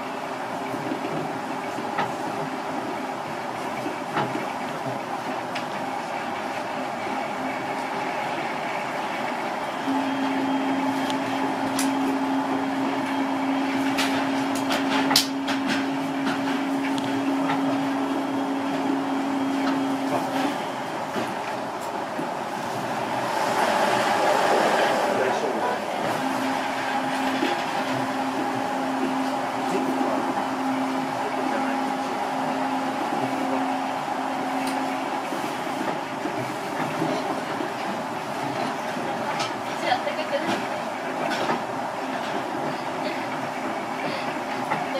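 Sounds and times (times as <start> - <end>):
train car running rumble: 0.0 - 44.9
two-tone drive hum: 7.2 - 22.3.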